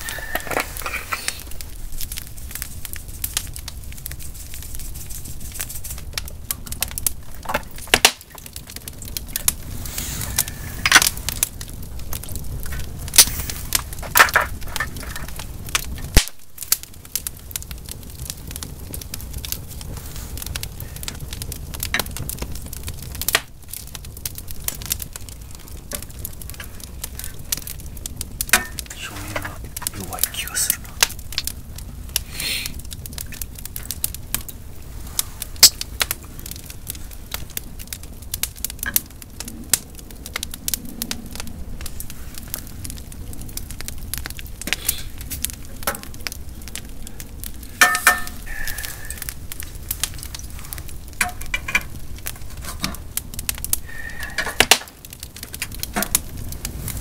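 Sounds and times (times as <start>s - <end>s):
low steady stove rumble: 0.0s - 57.0s
wood fire crackling and popping: 0.0s - 57.0s.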